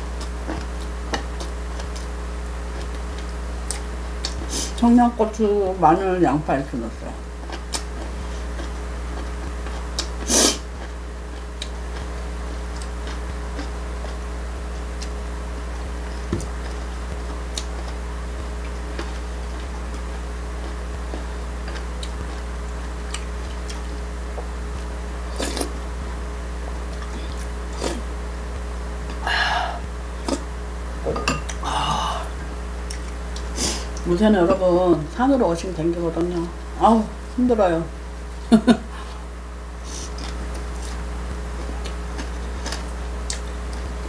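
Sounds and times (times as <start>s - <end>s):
steady low hum: 0.0s - 44.0s
mouth sounds of eating: 25.3s - 26.1s, 41.6s - 43.9s.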